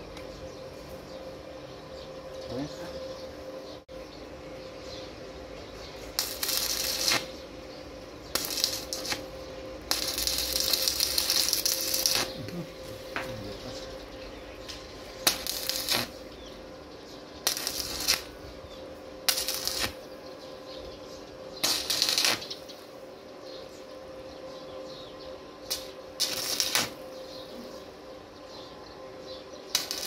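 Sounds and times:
welder hum: 0.0s - 30.0s
arc welder crackling: 5.9s - 20.8s, 21.5s - 23.0s, 25.6s - 27.8s, 29.7s - 30.0s.

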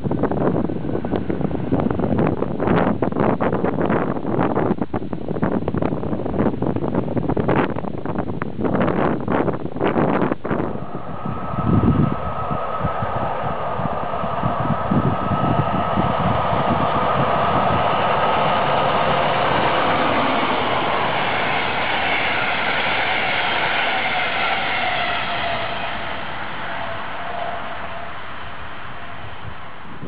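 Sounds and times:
train wheels rumbling on rail: 0.0s - 30.0s
locomotive whine dropping in pitch: 8.9s - 30.0s.

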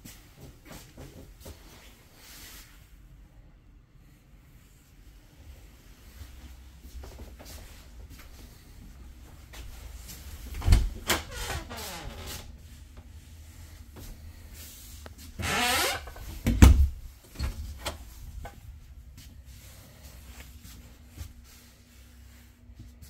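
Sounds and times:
door rubbing scrape: 15.3s - 16.4s
heavy door thump: 16.4s - 17.0s.

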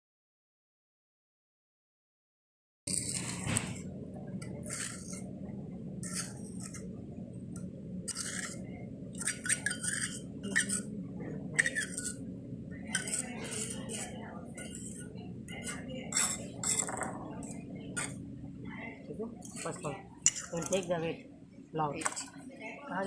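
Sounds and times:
spatula scraping soil paste: 2.9s - 3.6s, 4.6s - 5.2s, 12.9s - 15.0s
steady low hum: 2.9s - 23.0s.

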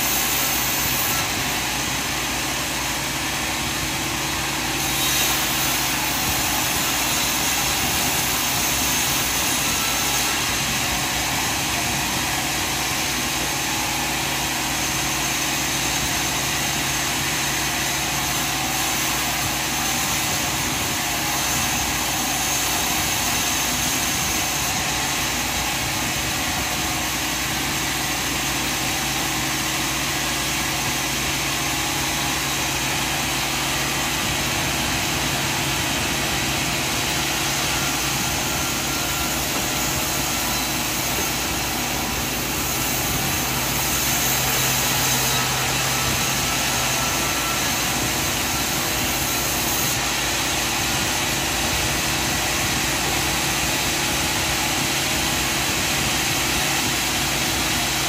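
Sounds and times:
sawmill machine engine drone: 0.0s - 58.0s.

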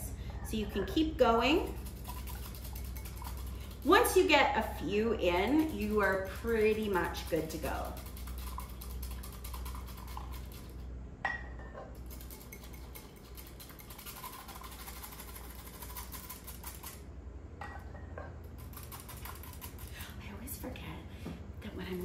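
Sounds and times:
whisk clicking against glass bowl: 1.6s - 4.2s, 5.2s - 10.7s.

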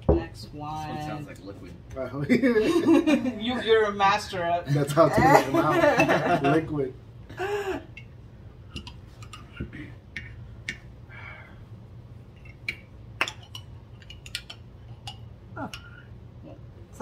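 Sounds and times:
spoon clicking on containers: 12.4s - 15.3s.

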